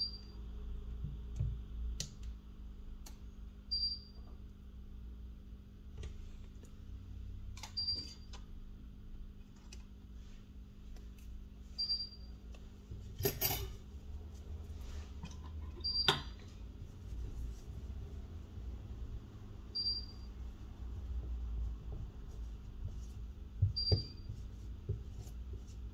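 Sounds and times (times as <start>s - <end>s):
steady low hum: 0.0s - 25.9s
tools clattering: 13.2s - 13.8s.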